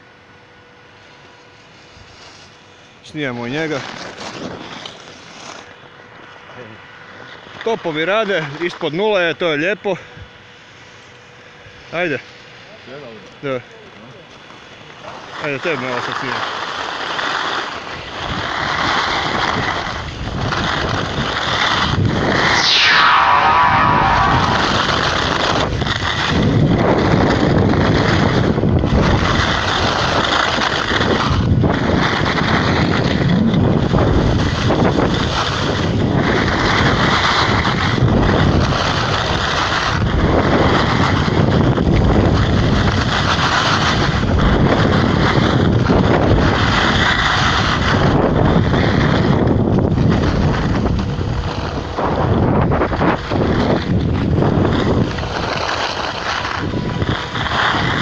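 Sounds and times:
wind on microphone: 0:18.2 - 0:58.0.

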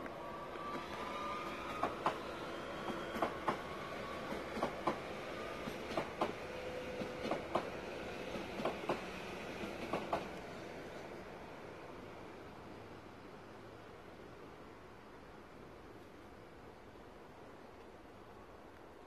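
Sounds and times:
train wheels clicking over rail joint: 0:00.0 - 0:03.7, 0:04.3 - 0:06.4, 0:07.0 - 0:10.5.

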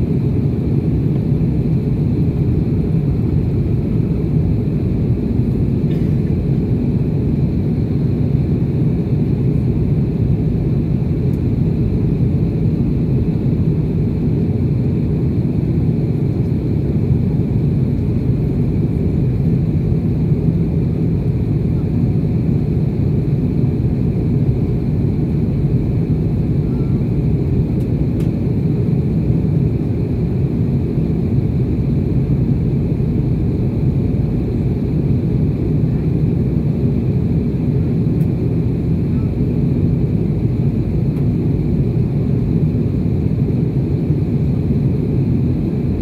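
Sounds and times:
jet engine and airflow rumble: 0:00.0 - 0:46.0
faint high whine: 0:25.2 - 0:28.4.

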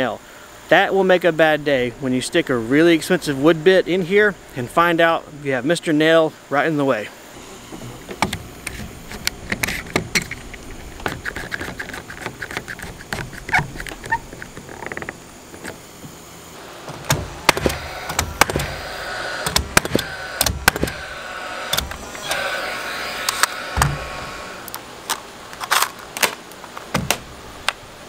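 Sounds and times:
nail gun whir: 0:07.4 - 0:27.4
nail gun firing: 0:16.9 - 0:24.3.

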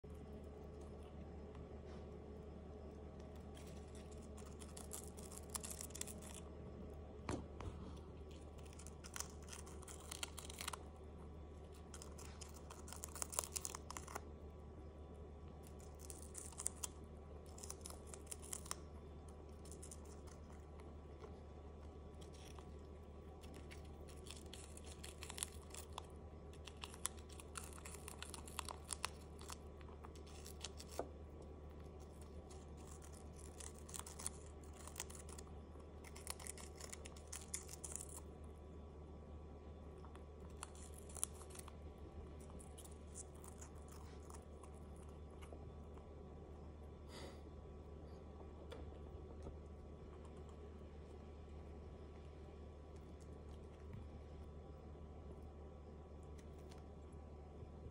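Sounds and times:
hamster chewing lettuce: 0:00.0 - 0:57.9
steady low hum: 0:00.0 - 0:57.9.

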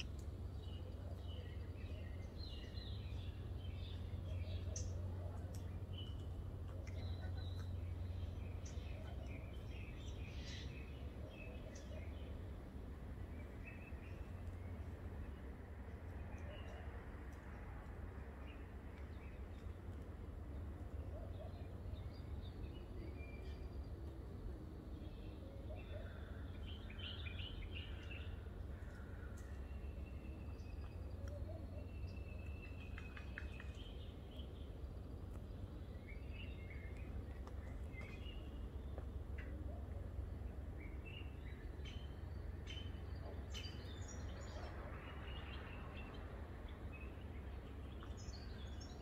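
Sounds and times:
small birds chirping: 0:00.0 - 0:15.5
low background rumble: 0:00.0 - 0:49.0.

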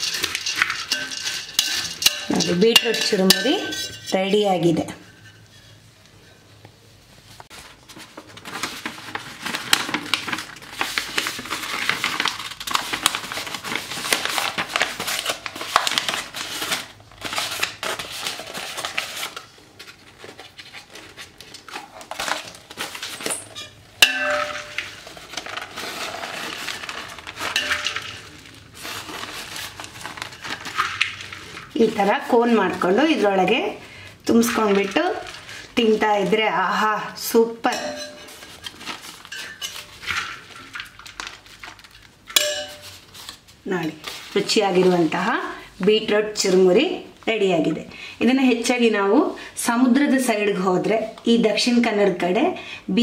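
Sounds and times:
puffed rice rattling in steel bowl: 0:00.0 - 0:04.7, 0:22.0 - 0:33.6, 0:34.2 - 0:43.1
paper rustling and crackling: 0:07.4 - 0:33.7, 0:34.3 - 0:36.4, 0:38.0 - 0:45.4.

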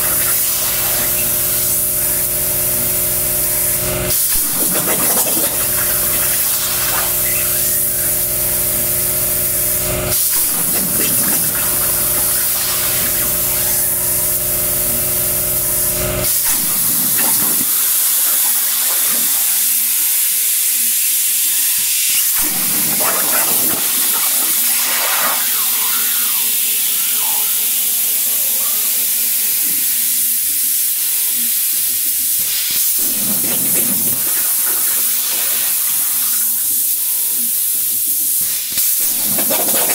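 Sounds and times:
machine hum: 0:00.0 - 0:19.8, 0:22.1 - 0:29.6, 0:32.8 - 0:36.3
plasma torch hissing: 0:00.0 - 0:39.9.

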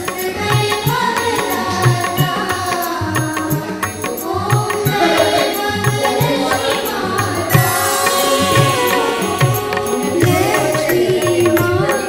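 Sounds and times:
chanted vocals: 0:00.0 - 0:12.0
steady drum beat: 0:00.0 - 0:12.0.

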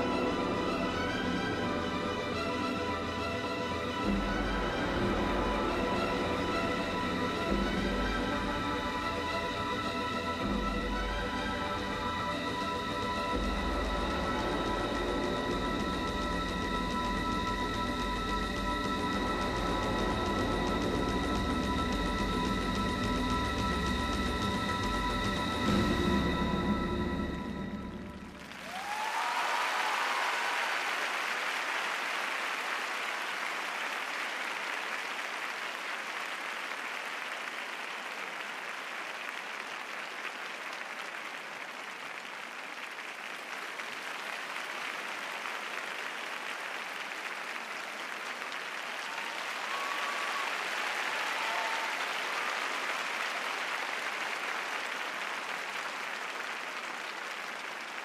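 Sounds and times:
audience applauding: 0:25.6 - 0:58.0
faint crowd calls: 0:48.2 - 0:54.8.

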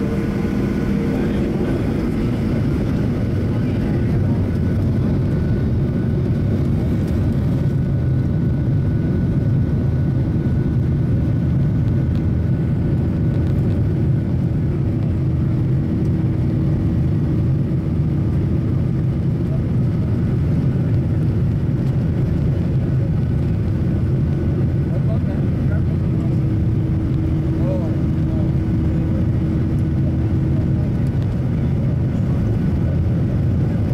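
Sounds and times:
faint engine whine: 0:00.0 - 0:33.9
jet engines rumbling: 0:00.0 - 0:33.9.

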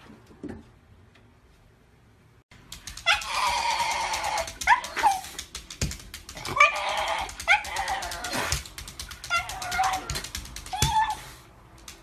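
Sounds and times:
sharp clicks: 0:02.6 - 0:10.9
dog whining: 0:03.0 - 0:05.4, 0:06.4 - 0:11.5
dog yelping: 0:03.0 - 0:05.4, 0:06.4 - 0:11.4.

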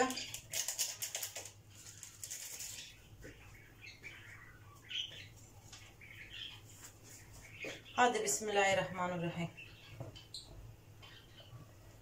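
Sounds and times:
paper packet crinkling: 0:00.0 - 0:02.9.

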